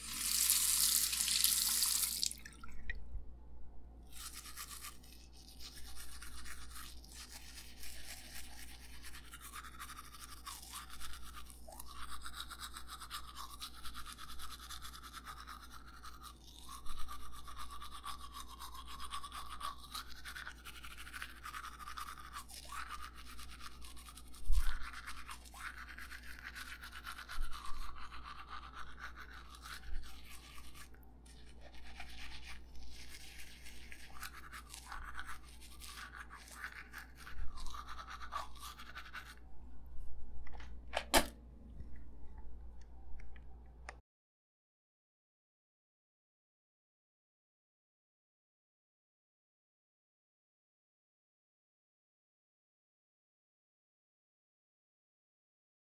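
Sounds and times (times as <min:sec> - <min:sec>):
toothbrush scrubbing teeth: 0:00.0 - 0:02.5, 0:04.1 - 0:40.2.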